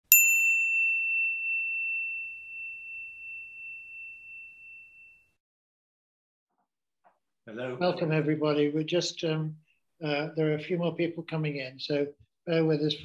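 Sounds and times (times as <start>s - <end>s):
high clear chime tone: 0.0s - 5.4s.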